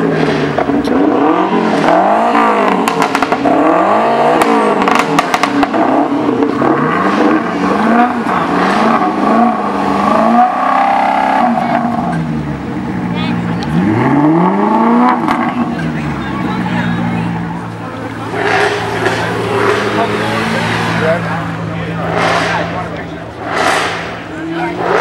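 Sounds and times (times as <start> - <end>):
car engines revving: 0.0 - 25.0
exhaust pops and crackles: 2.7 - 3.5, 4.3 - 6.7.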